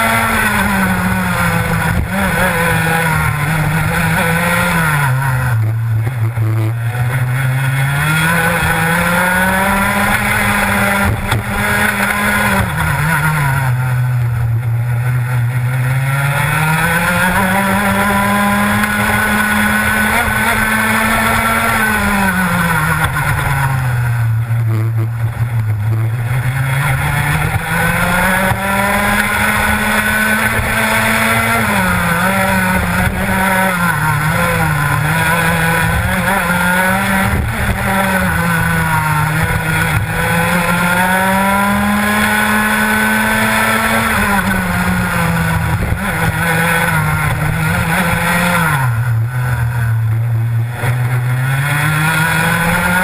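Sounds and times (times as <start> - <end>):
kart engine at full revs: 0.0 - 53.0.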